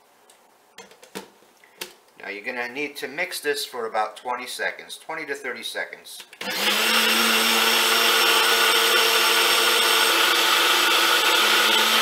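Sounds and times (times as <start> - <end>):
blender motor whine: 6.4 - 12.0.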